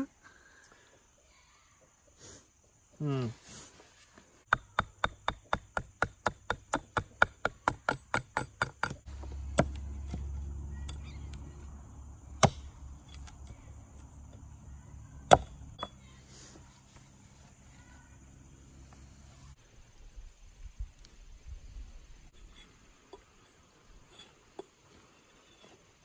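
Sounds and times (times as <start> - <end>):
axe handle knocking on stump: 4.5 - 11.4, 12.4 - 13.5, 15.3 - 15.9
axe head chopping wood: 4.5 - 11.7, 12.3 - 14.4, 15.2 - 16.0.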